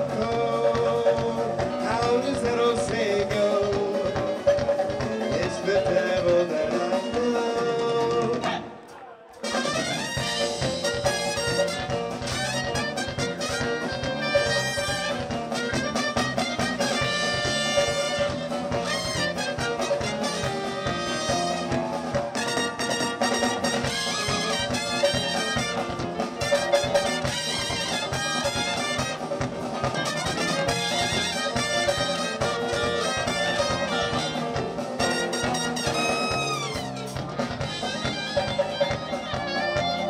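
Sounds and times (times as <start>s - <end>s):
electric bass: 0.0s - 8.6s
drum kit: 0.0s - 40.0s
trumpet: 0.0s - 40.0s
saxophone: 3.6s - 40.0s.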